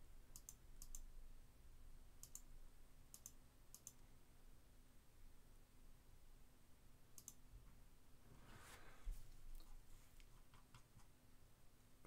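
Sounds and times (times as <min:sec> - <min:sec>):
faint computer mouse clicks: 0:00.4 - 0:01.1, 0:02.2 - 0:02.5, 0:03.1 - 0:04.0, 0:07.2 - 0:07.4.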